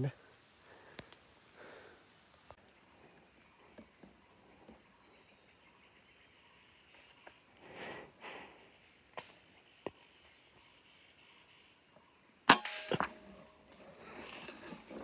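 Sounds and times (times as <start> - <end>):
high insect drone: 0.0 - 15.0
faint ticks: 0.9 - 1.3.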